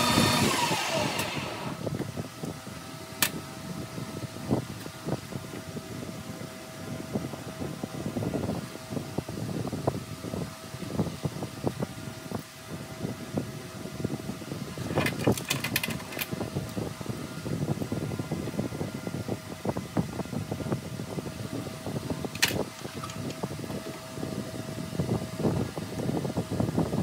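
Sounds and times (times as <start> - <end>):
steady machine hum: 0.0 - 27.0
metal parts and tools rattling: 14.9 - 16.3.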